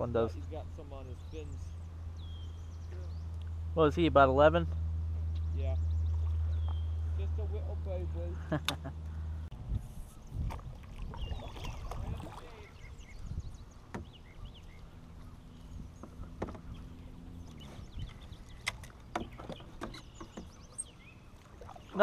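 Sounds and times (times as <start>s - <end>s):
paddle strokes and water sloshing: 9.8s - 22.0s
paddle knocking against hull: 13.8s - 14.3s, 15.9s - 16.9s, 18.7s - 20.7s.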